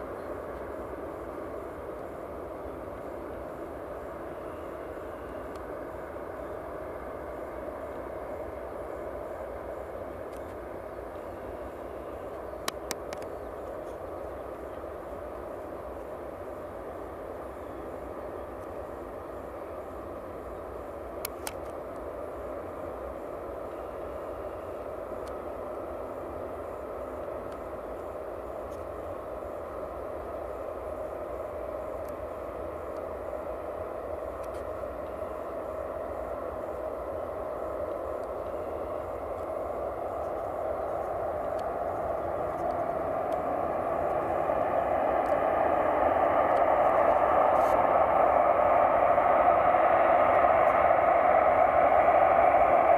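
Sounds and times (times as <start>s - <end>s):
jet engines rumbling: 0.0s - 52.9s
faint ticks: 5.5s - 5.7s, 12.3s - 14.0s.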